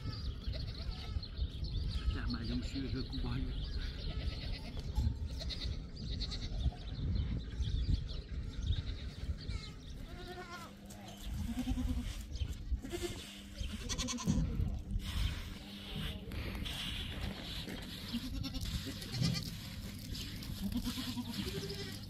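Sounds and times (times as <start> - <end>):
goats bleating: 3.8 - 6.7, 8.9 - 14.8, 18.0 - 19.8, 20.4 - 22.0.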